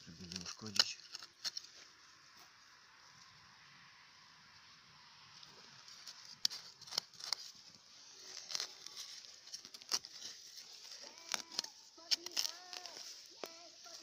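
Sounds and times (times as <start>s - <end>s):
roots tearing and crackling: 0.0s - 2.3s, 5.3s - 14.0s
hands digging through soil: 5.3s - 14.0s.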